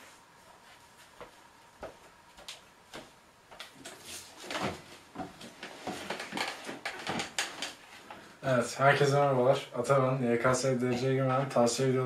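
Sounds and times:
footsteps: 0:00.0 - 0:07.3
office chair knocks and scrapes: 0:04.4 - 0:07.8.

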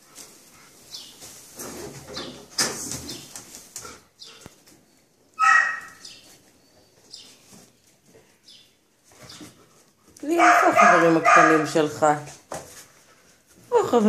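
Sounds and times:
dog sniffing and rustling: 0:00.0 - 0:01.8, 0:05.7 - 0:14.0
dog yip: 0:05.4 - 0:06.1.

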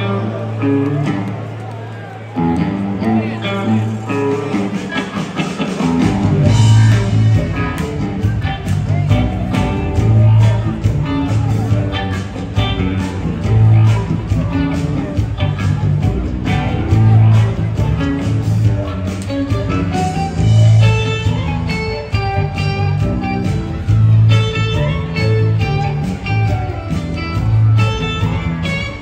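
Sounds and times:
heavy bass guitar: 0:00.0 - 0:01.6, 0:02.3 - 0:29.0
live band playing: 0:00.0 - 0:29.0.

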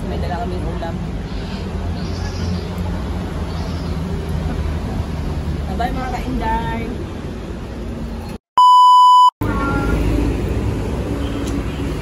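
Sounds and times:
electronic beep tone: 0:08.6 - 0:09.4.

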